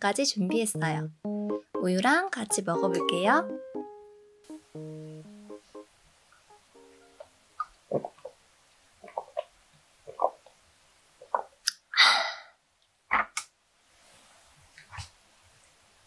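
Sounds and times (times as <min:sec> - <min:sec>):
breathy exhale: 0:12.0 - 0:12.6.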